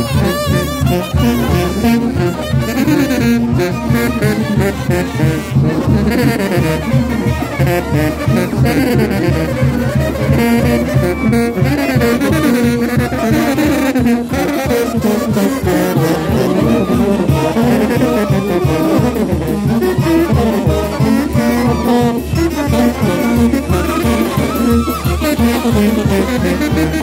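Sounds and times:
brass band playing: 0.0s - 27.0s
trombones and trumpets melody: 0.0s - 27.0s.

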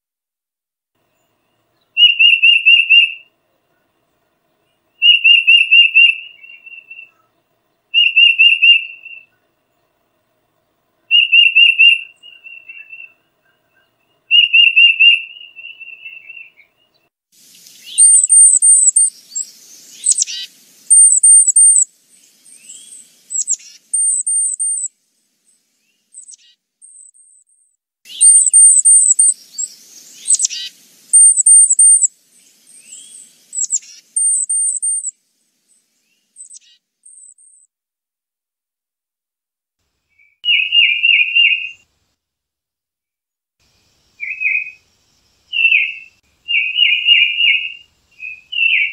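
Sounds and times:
bird whistled notes: 2.0s - 3.2s, 5.0s - 7.2s, 8.0s - 9.3s, 11.1s - 13.1s, 14.3s - 16.6s, 17.6s - 24.9s, 28.1s - 35.1s, 40.2s - 41.8s, 45.5s - 48.9s
harsh raspy bird calls: 28.1s - 32.1s
very high thin bird notes: 28.1s - 32.1s.

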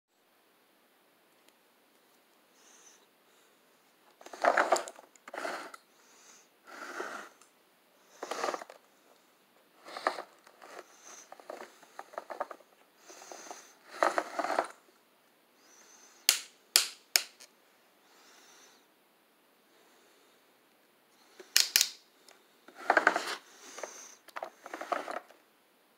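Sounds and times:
plastic toy parts scraping and rattling: 4.2s - 5.8s, 8.2s - 8.8s, 9.8s - 14.8s, 22.7s - 25.4s
plastic parts snapping into place: 16.3s - 17.5s, 21.5s - 22.0s.

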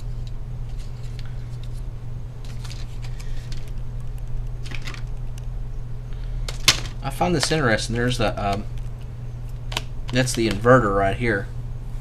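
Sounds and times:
steady low hum: 0.0s - 12.0s
plastic clicks and rustles: 2.5s - 5.4s.

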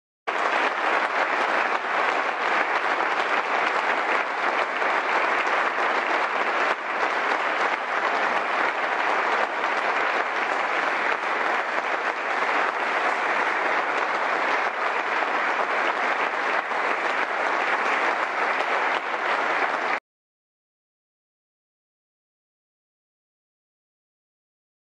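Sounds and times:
audience applause: 0.3s - 20.0s.

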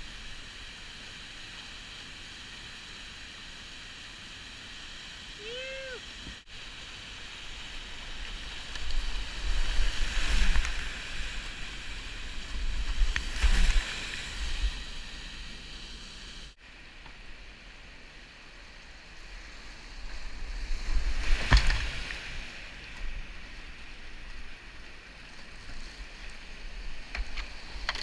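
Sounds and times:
whitewater rushing: 0.3s - 17.0s
water crashing and splashing: 6.0s - 17.6s, 18.7s - 28.0s.

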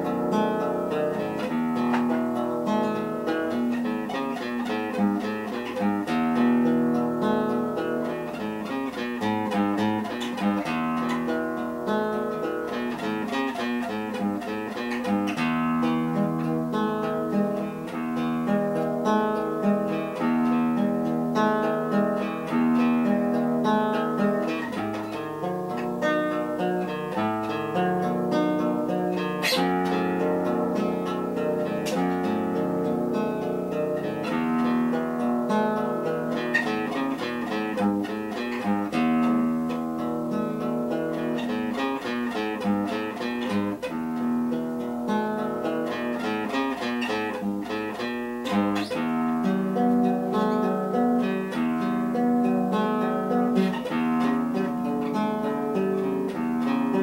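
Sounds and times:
acoustic guitar instrumental: 0.0s - 57.0s.

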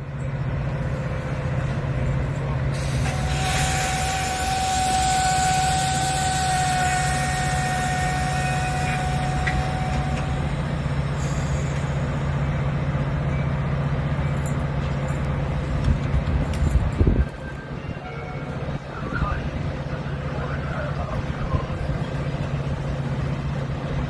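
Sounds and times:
train diesel engine drone: 0.0s - 24.0s.

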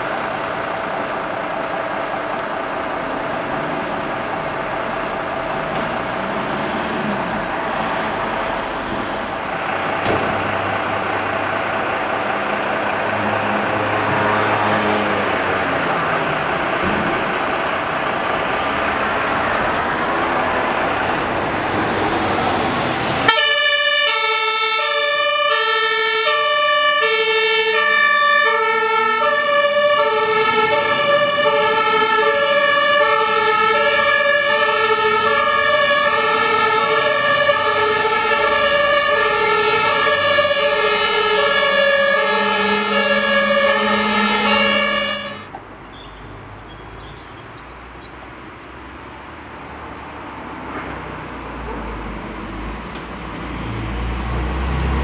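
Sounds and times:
diesel truck engine running: 0.0s - 45.8s
two-tone siren: 23.2s - 45.5s.

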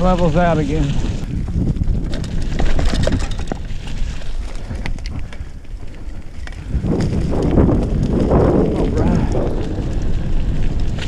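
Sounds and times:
bike clicks and rattles: 0.0s - 11.0s
bike tyre rumble: 0.0s - 11.0s
wind buffeting microphone: 0.0s - 11.0s
rush of noise: 8.4s - 11.0s.

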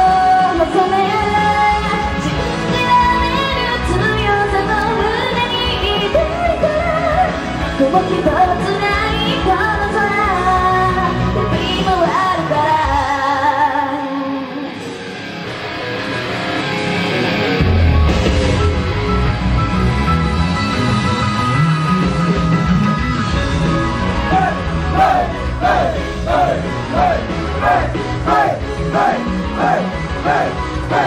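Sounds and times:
woman singing live: 0.0s - 14.8s
pop-rock band playing: 0.0s - 31.0s.

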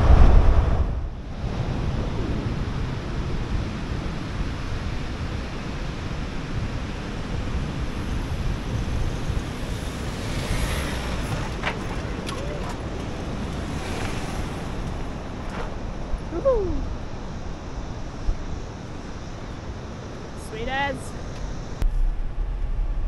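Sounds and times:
wind buffeting microphone: 0.0s - 23.0s
surf washing: 1.3s - 17.7s
vehicle driving past on sand: 6.2s - 16.4s.

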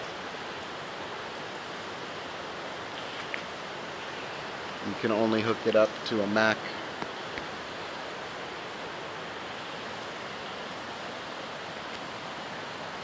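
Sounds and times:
steady hiss: 0.0s - 13.0s.

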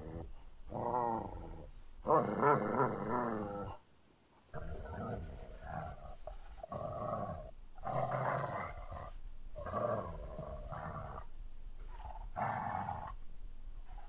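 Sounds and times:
dog growling: 0.0s - 3.8s, 4.5s - 13.2s.

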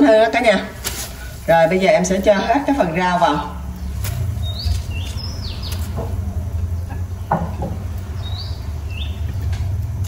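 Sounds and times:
steady low hum: 0.0s - 10.0s
small bird chirping: 3.6s - 9.6s
knock: 7.3s - 7.8s.

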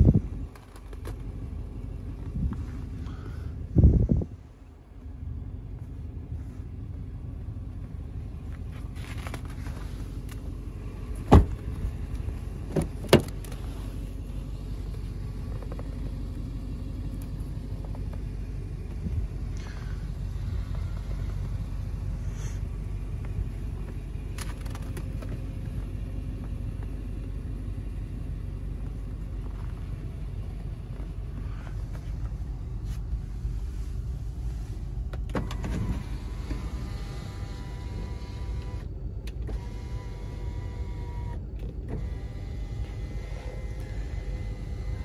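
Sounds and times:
low rumble: 0.0s - 45.0s
sunroof motor whining: 35.3s - 45.0s.

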